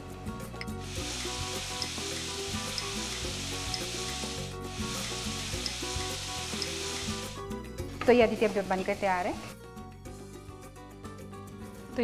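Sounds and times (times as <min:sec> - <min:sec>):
food sizzling in oil: 0:00.6 - 0:09.5.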